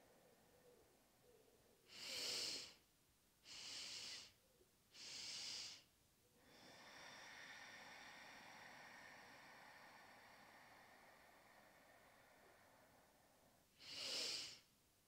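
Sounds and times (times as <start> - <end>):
long slow exhale: 3.5 - 14.7.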